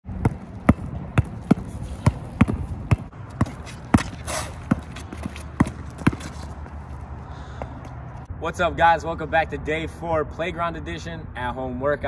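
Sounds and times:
basketball bouncing on concrete: 0:00.1 - 0:06.8
short scrape: 0:03.7 - 0:04.7.

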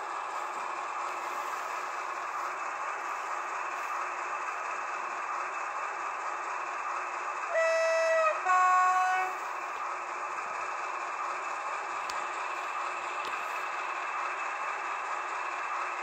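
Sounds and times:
model diesel locomotive running: 0:00.0 - 0:16.0
two-note train horn: 0:07.5 - 0:09.4.

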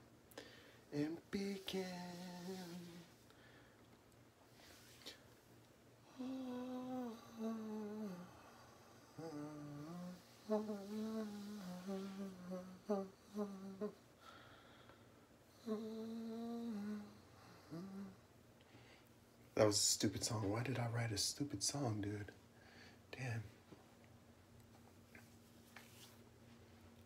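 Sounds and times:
man humming a tune: 0:01.0 - 0:03.2, 0:06.0 - 0:14.0, 0:15.5 - 0:18.2.

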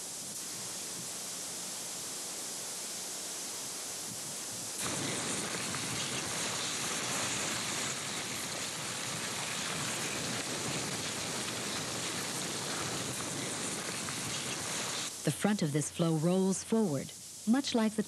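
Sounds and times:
lava crust crackling hiss: 0:00.0 - 0:18.0.

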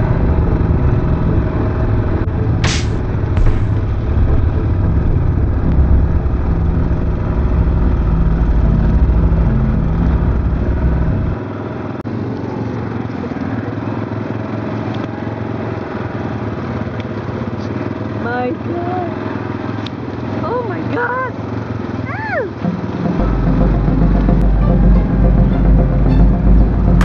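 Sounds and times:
heavy low rumble: 0:00.0 - 0:11.4, 0:22.6 - 0:27.0
atv engine running: 0:00.0 - 0:27.0.

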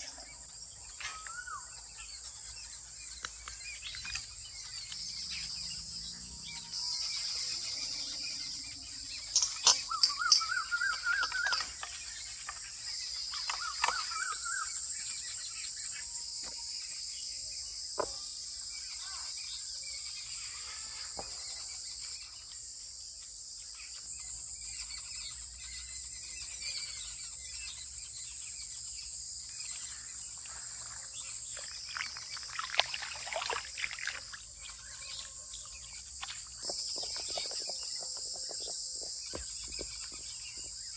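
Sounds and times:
bird calling: 0:00.0 - 0:16.6, 0:26.4 - 0:40.9
insects chirping: 0:00.0 - 0:40.9
water splashing in a bowl: 0:30.4 - 0:37.8.

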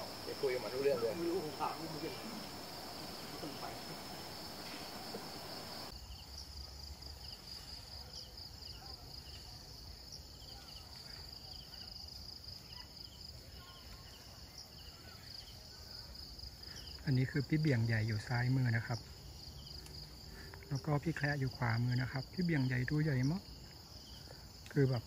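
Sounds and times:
short insect chirps: 0:00.0 - 0:08.0
high-pitched insect chorus: 0:00.0 - 0:25.0.

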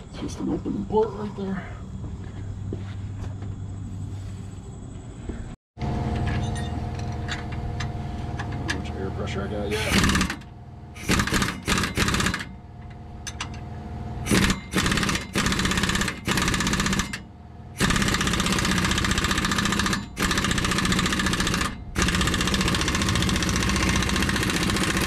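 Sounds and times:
pneumatic impact wrench hammering: 0:09.7 - 0:13.6, 0:14.2 - 0:25.0.

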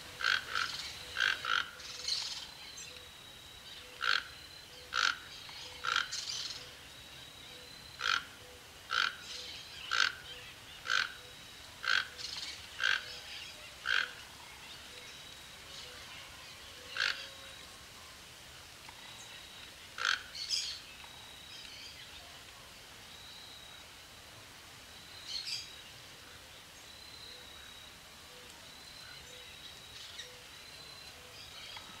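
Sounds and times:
toucan croaking calls: 0:00.1 - 0:03.1, 0:03.8 - 0:06.8, 0:07.6 - 0:15.1, 0:16.7 - 0:17.6, 0:19.9 - 0:20.8.

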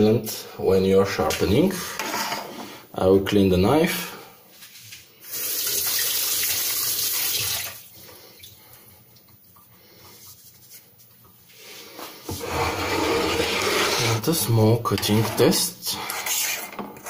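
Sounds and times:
tap water running: 0:05.2 - 0:10.4.

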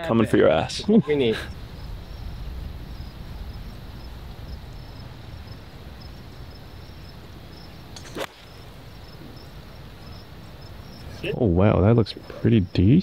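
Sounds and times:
faint insect chirps: 0:00.1 - 0:13.0
wind rumble on microphone: 0:01.4 - 0:07.7.

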